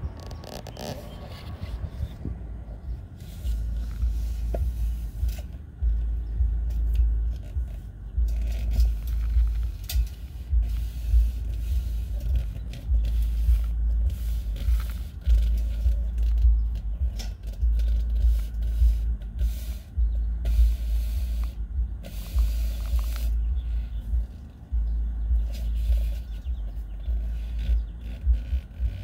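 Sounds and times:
camera handling rumble and hiss: 0.0 - 29.0.

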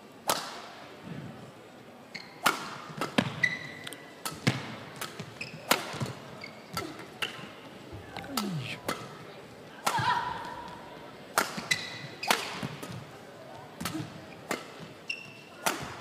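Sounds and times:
shoes squeaking on court floor: 2.1 - 2.4, 3.2 - 8.6, 11.6 - 13.1, 13.8 - 15.6
racket hitting shuttlecock: 2.4 - 3.5, 4.2 - 7.4, 9.8 - 10.3, 11.3 - 13.0, 13.8 - 15.0, 15.6 - 16.0.

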